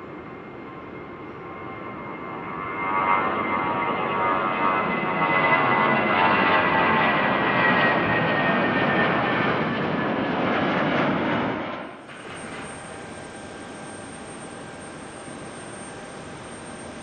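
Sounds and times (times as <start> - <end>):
jet engines running: 0.0 - 17.0
thin high tone: 12.0 - 17.0.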